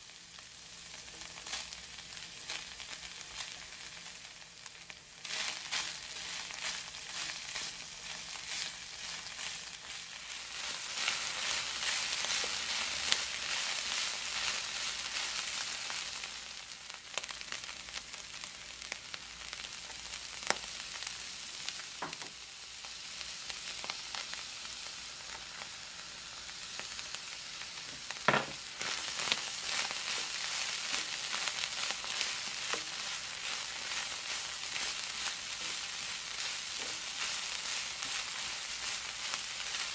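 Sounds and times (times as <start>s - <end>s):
meat and onion sizzling: 0.0s - 39.9s
spatula stirring: 28.8s - 39.9s.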